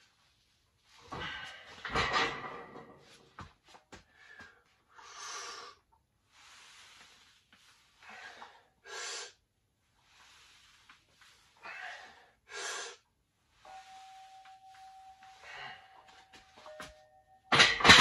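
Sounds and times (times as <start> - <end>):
person breathing hard: 11.6 - 13.1.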